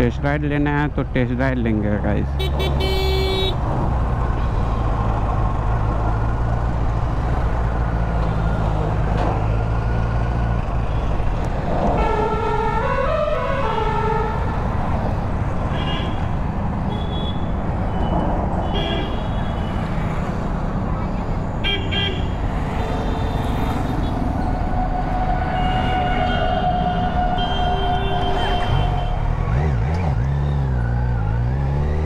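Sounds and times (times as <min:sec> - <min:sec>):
road and wind noise: 0:00.0 - 0:32.0
vehicle horn warbling: 0:02.4 - 0:03.6, 0:25.3 - 0:29.3.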